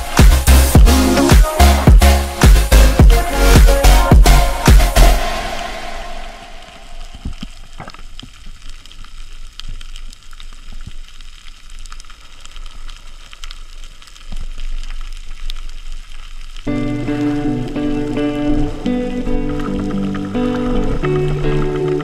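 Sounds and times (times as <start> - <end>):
dense crackle of small clicks: 6.8 - 22.0.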